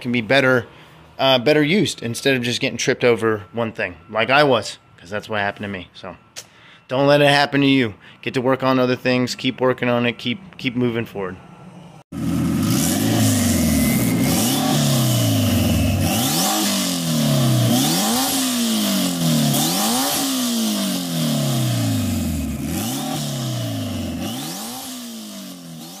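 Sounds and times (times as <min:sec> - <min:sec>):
car engine revving hard: 0:12.1 - 0:26.0.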